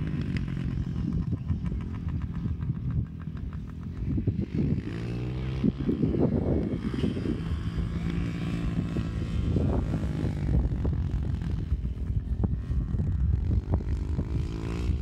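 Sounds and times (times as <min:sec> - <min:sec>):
distant dirt bike engine: 0:00.0 - 0:15.0.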